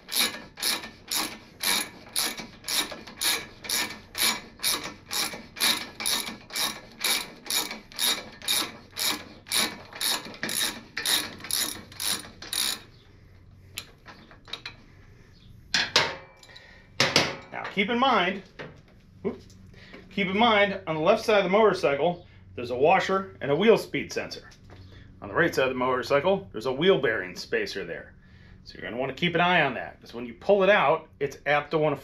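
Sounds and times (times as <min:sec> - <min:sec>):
ratchet clicking: 0:00.0 - 0:13.0.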